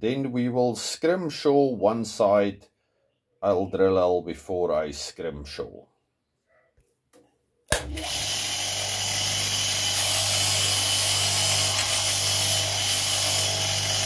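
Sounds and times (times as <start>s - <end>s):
bench grinder motor hum: 7.7s - 14.0s
grinding hiss: 9.5s - 14.0s.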